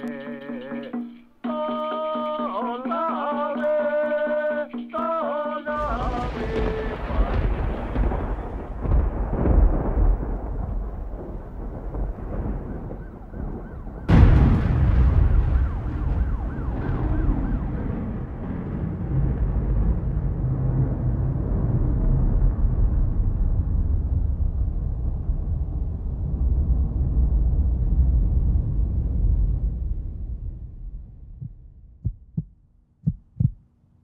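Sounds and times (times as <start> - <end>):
deep rumbling noise: 5.8 - 33.6
faint wailing siren: 12.3 - 19.1.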